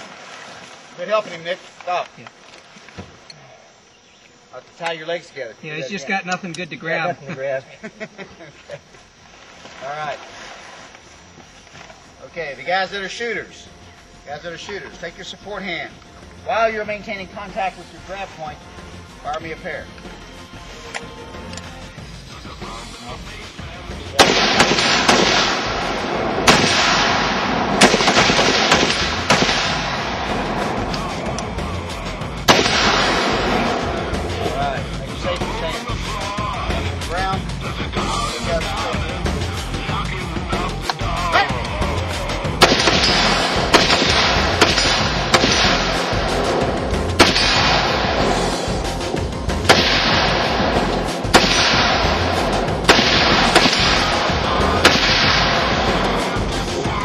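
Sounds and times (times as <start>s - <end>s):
music playing: 12.0s - 57.0s
rifle shots: 24.2s - 31.2s, 32.4s - 34.3s, 42.6s - 56.4s
echoing wash: 24.2s - 34.4s.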